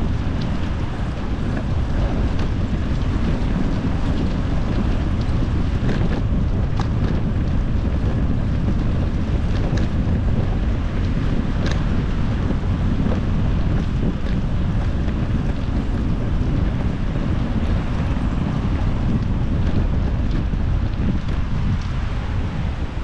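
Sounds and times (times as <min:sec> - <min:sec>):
wind buffeting microphone: 0:00.0 - 0:23.0
light ticks: 0:11.1 - 0:12.1.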